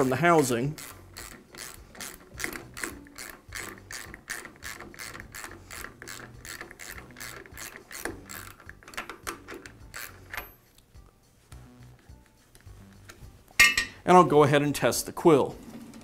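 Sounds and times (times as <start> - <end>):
rapid ratchet-like clicking: 0.0 - 10.5.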